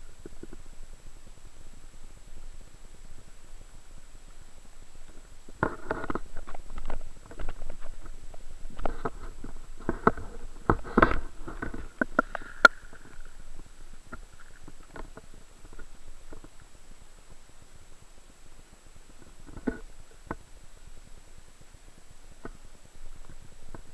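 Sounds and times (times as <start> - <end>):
underwater clicks and crackling: 4.3 - 16.8, 19.1 - 20.5.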